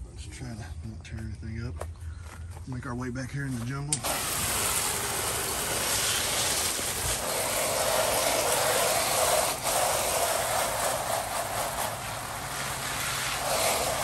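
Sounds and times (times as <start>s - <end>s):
spray nozzle hissing: 4.0s - 14.0s.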